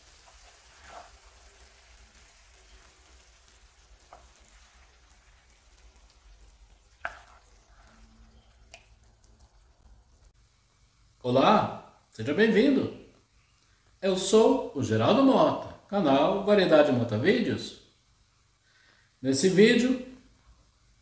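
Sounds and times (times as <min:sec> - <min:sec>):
squash sizzling in a pan: 0:00.0 - 0:11.3
wooden spoon scraping a pan: 0:00.1 - 0:01.4, 0:07.0 - 0:08.5.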